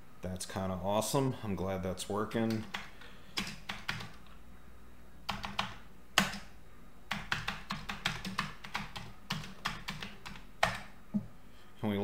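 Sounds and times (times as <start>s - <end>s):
keyboard typing: 2.5s - 4.3s, 5.3s - 6.5s, 7.1s - 10.9s.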